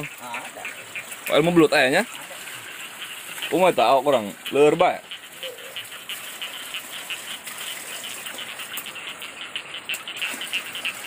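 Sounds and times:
high-pitched rhythmic rattling: 0:00.0 - 0:11.0.

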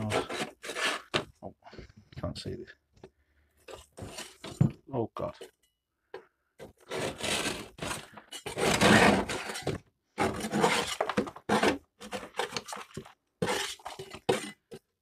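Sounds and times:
crackling scrapes on steel: 0:00.0 - 0:01.2, 0:03.7 - 0:04.6, 0:06.7 - 0:12.8, 0:13.4 - 0:14.7.

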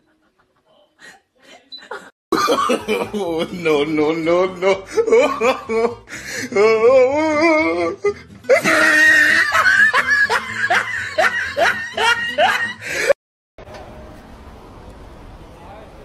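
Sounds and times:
person laughing: 0:00.0 - 0:03.9, 0:04.5 - 0:06.0, 0:08.5 - 0:13.2
music: 0:03.0 - 0:13.1.

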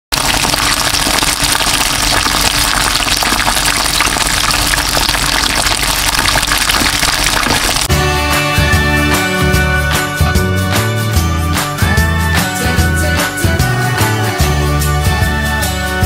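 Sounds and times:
food deep-frying in oil: 0:00.1 - 0:07.9
intro music with a beat: 0:07.9 - 0:16.0.

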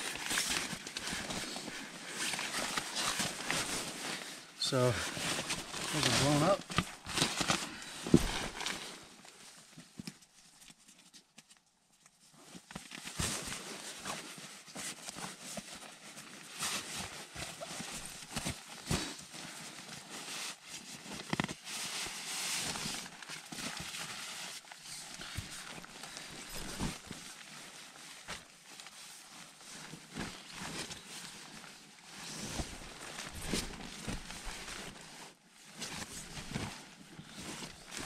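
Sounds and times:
nylon fabric rustling and crinkling: 0:00.0 - 0:38.0
soft scuffs and knocks: 0:05.4 - 0:08.8.

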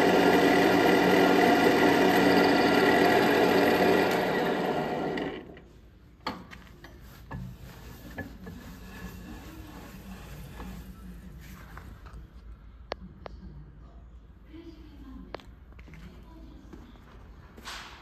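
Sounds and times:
lathe humming: 0:00.0 - 0:05.6.

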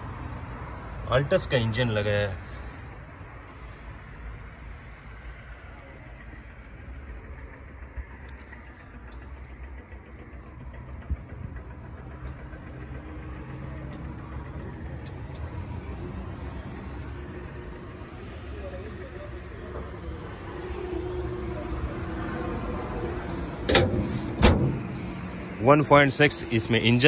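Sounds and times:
car engine idling: 0:00.0 - 0:27.0.

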